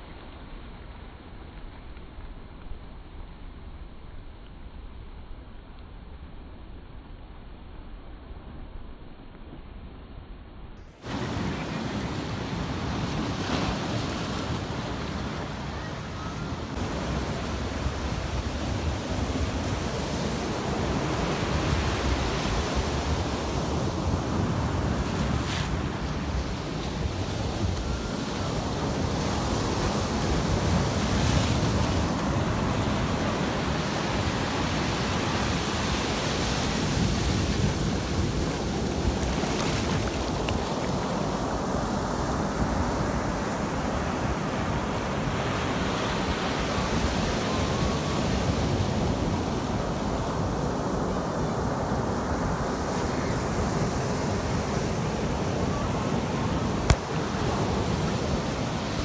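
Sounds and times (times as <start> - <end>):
ocean surf breaking: 11.0 - 59.0.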